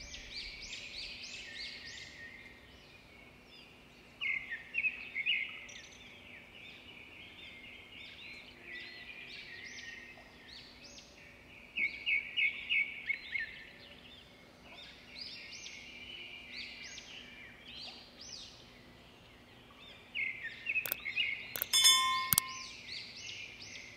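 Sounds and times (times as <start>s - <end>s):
small birds chirping: 0.0s - 23.9s
sharp clicks: 21.6s - 22.6s
bright ding: 21.6s - 22.7s.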